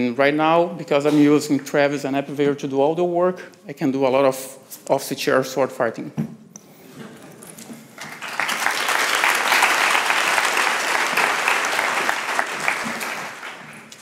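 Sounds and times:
audience applauding: 8.0 - 14.0.

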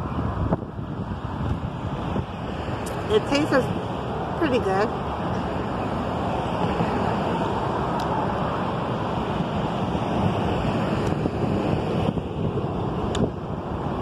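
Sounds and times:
road traffic: 0.0 - 14.0
wind rushing on microphone: 0.0 - 14.0.

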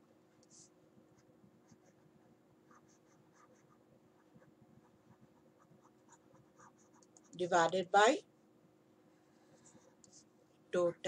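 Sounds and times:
faint steady hum: 0.0 - 11.0
stylus scratching on tablet: 0.4 - 7.8.

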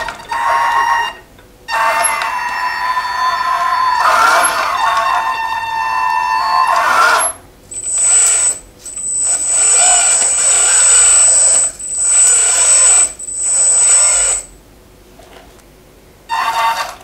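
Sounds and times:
hydraulic pump whining: 0.0 - 14.6
thin high whistle: 3.8 - 14.5.

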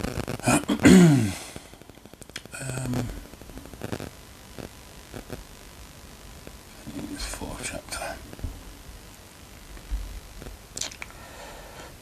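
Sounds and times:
man sighing: 1.0 - 1.6.

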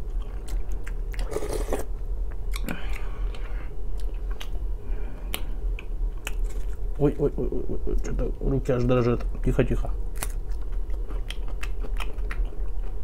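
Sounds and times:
close chewing: 10.2 - 13.0.

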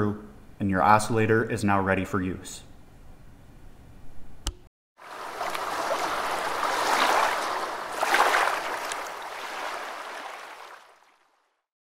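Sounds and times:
rushing splashing water: 5.0 - 11.6.

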